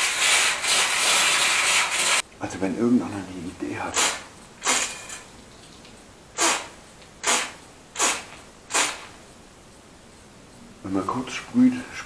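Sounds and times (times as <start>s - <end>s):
pressure sprayer hissing bursts: 6.4s - 9.2s.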